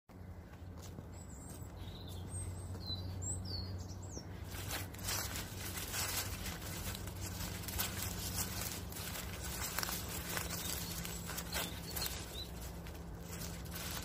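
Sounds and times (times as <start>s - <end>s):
steady low hum: 0.1s - 14.0s
footsteps on dry grass and leaves: 0.2s - 14.0s.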